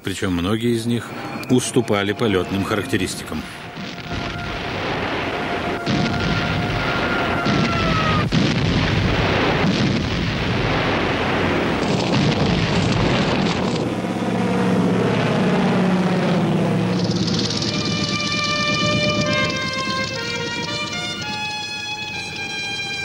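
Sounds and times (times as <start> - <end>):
aircraft engines droning: 0.0 - 8.4, 10.7 - 23.0
rumble of explosions: 0.4 - 21.4
falling bomb whistle: 3.6 - 8.4.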